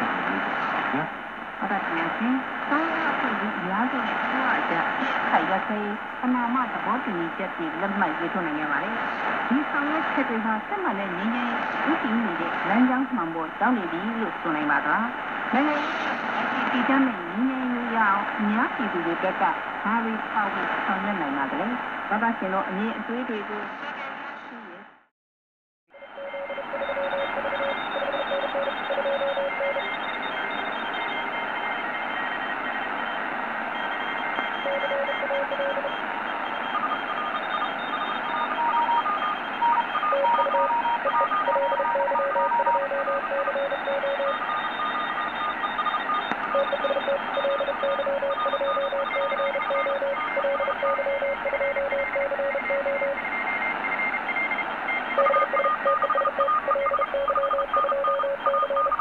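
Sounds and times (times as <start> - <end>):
radio band hiss: 0.0 - 24.8
morse code tones: 25.9 - 59.0.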